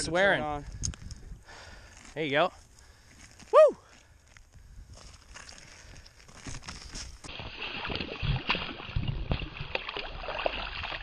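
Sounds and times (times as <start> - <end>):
water sloshing and splashing: 6.4 - 11.0.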